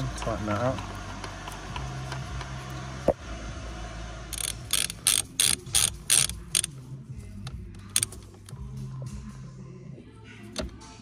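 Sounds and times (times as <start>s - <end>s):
socket ratchet wrench ratcheting: 4.3s - 6.8s, 7.8s - 8.6s.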